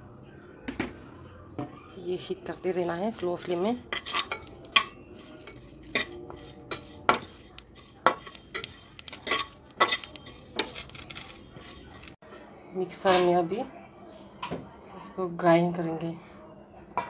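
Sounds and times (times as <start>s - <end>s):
spoon scraping and knocking a pan: 2.6s - 12.2s.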